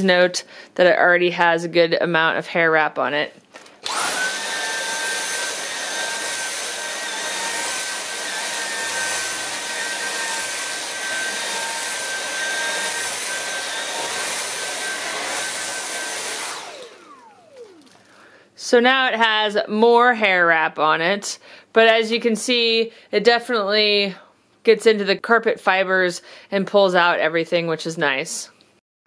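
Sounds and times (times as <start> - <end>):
vacuum cleaner whining: 3.8 - 18.4.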